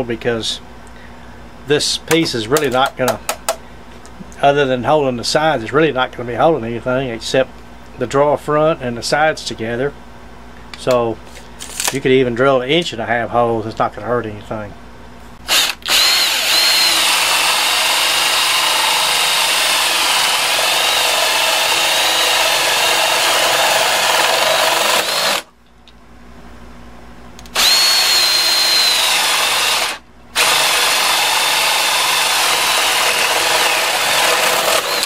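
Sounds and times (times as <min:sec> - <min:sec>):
cordless drill boring through wood: 0:15.5 - 0:25.5, 0:27.5 - 0:35.0.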